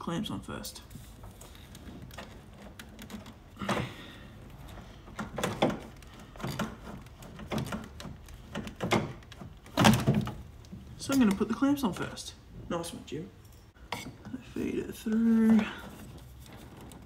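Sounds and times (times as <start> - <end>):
rubber hose knocks and scrapes: 0.9 - 11.4.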